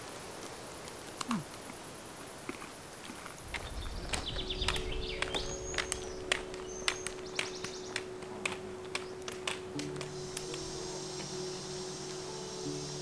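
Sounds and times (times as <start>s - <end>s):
trekking poles tapping asphalt: 2.4s - 12.3s
bird chirps: 3.6s - 13.0s.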